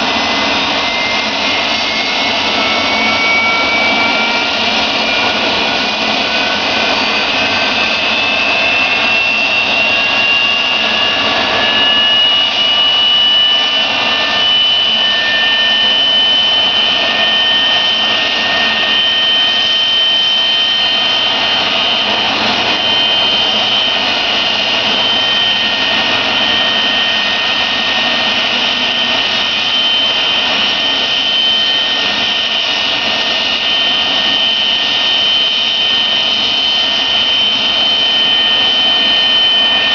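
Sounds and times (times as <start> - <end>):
jet engines whining: 0.0 - 39.9.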